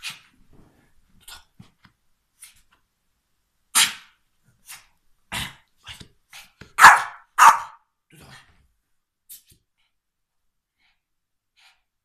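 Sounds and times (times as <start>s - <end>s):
small dog yapping: 6.8s - 7.8s.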